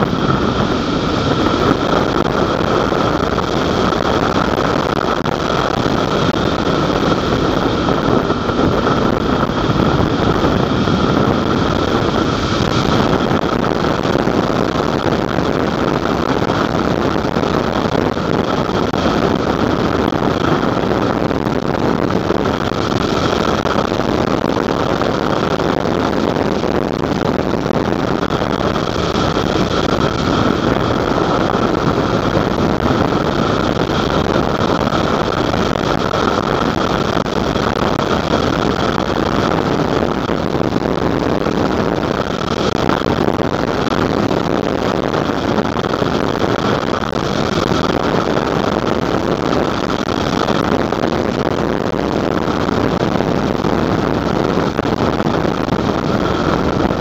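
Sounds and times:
motorcycle engine running: 0.0 - 44.2
wind rushing on microphone: 0.0 - 57.0.

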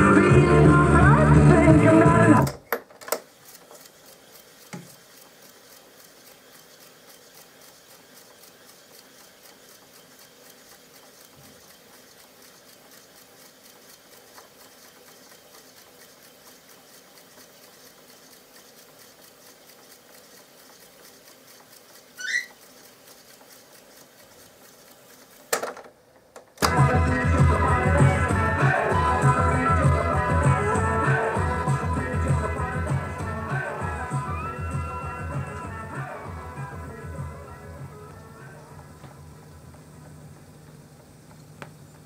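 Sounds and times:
tape recorder whirring: 0.0 - 42.0
reels ticking: 2.4 - 42.0
short rising squeak: 22.2 - 22.6.

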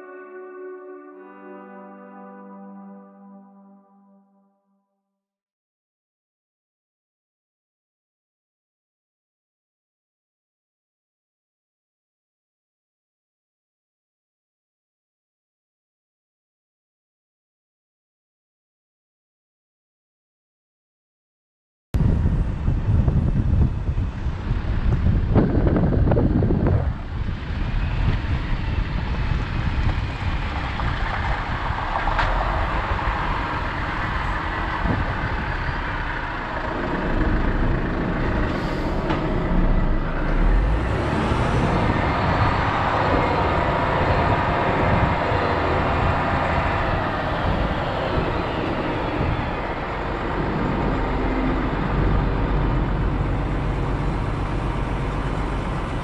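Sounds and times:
road noise: 22.0 - 56.0
truck engine running: 22.0 - 56.0.

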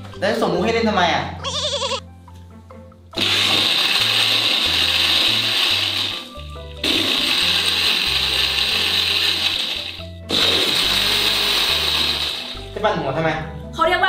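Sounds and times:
background music with bass line: 0.0 - 14.0
blender crushing ice: 3.2 - 12.7.

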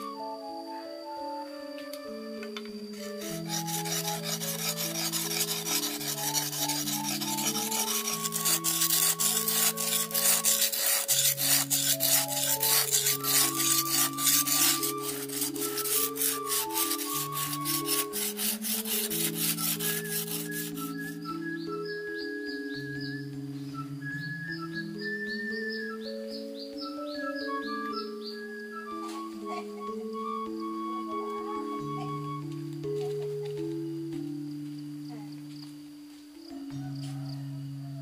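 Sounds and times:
simple instrumental melody: 0.0 - 37.0
rhythmic rasping scraping strokes: 2.9 - 21.8.

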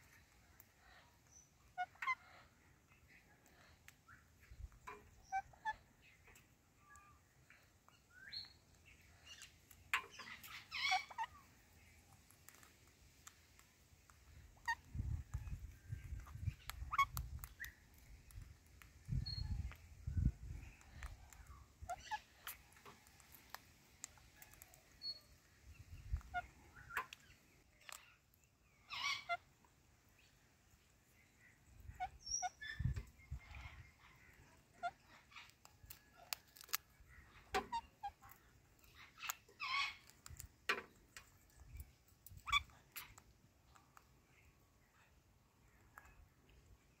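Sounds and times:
parakeet calls: 0.8 - 3.2, 8.4 - 12.0, 14.5 - 17.8, 21.8 - 22.6, 28.7 - 29.5, 31.4 - 36.2, 37.1 - 40.4, 42.4 - 43.2
beaks biting into fruit: 20.6 - 25.3, 35.2 - 43.9.

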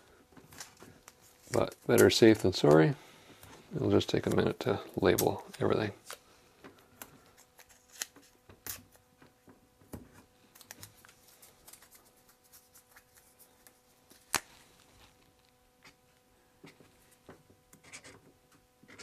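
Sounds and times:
masking tape rustling: 0.1 - 18.2.

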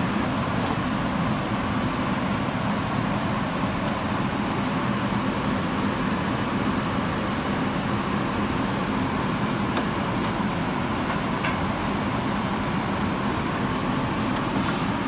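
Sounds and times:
kitchen ventilation hum: 0.0 - 15.0.

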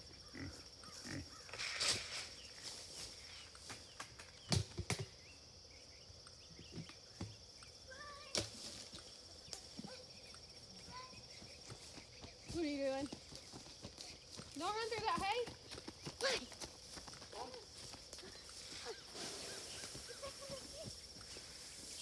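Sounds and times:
rustling through brush and leaves: 1.1 - 3.9, 8.2 - 10.0, 16.7 - 22.0.

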